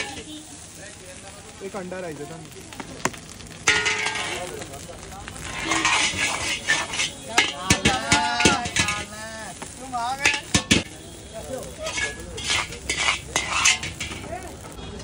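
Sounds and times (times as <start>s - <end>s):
ladle clanking against wok: 0.0s - 0.3s, 3.6s - 4.6s, 5.4s - 9.2s, 10.2s - 10.9s, 11.8s - 14.4s
fried rice sizzling in a wok: 0.0s - 15.0s.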